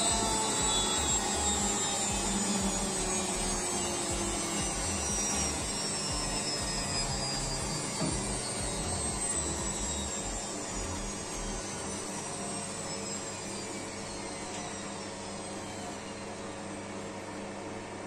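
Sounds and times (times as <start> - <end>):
washing machine drum spinning down: 0.0 - 12.5.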